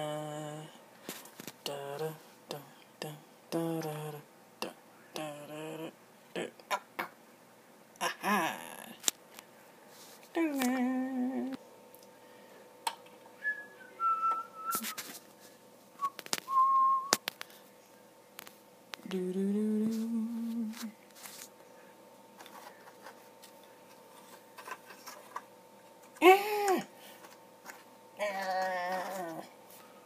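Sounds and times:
person humming low note: 0.0s - 0.7s, 1.7s - 6.6s, 10.4s - 11.6s, 19.1s - 20.9s
person whistling: 13.4s - 15.0s, 16.0s - 17.2s.

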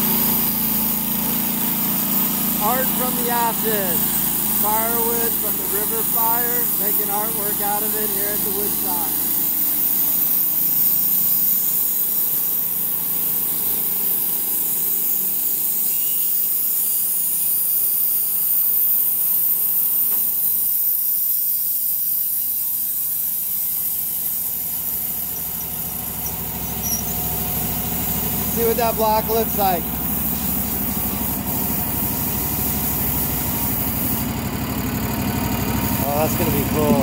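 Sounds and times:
sawmill engine under load: 0.0s - 15.7s, 23.3s - 37.0s
band blade hissing through wood: 0.0s - 34.5s, 35.6s - 37.0s.

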